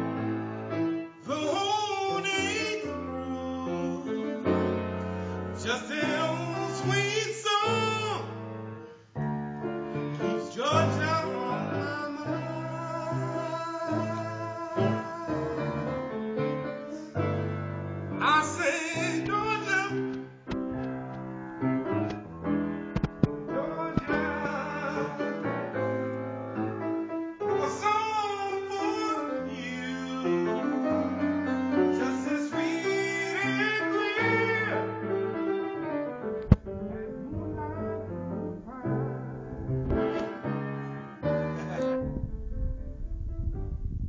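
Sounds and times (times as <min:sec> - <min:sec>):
person singing: 0:01.2 - 0:04.8, 0:05.5 - 0:08.4, 0:10.2 - 0:17.4, 0:18.2 - 0:20.2, 0:23.4 - 0:26.0, 0:27.4 - 0:35.9, 0:37.0 - 0:40.6
electronic keyboard chords: 0:19.3 - 0:24.4
sharp clicks: 0:22.9 - 0:24.2.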